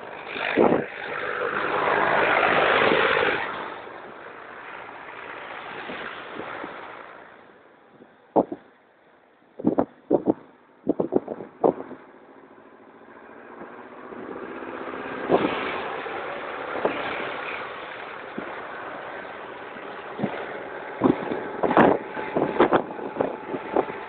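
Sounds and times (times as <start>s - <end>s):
tractor diesel engines passing: 0.0s - 9.2s, 9.9s - 24.0s
sharp thumps: 8.4s - 8.7s.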